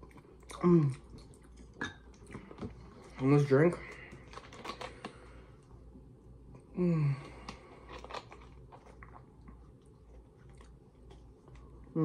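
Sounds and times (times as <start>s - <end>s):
eating clicks and crunches: 0.0s - 5.4s, 7.2s - 12.0s
person humming mm: 6.7s - 7.2s.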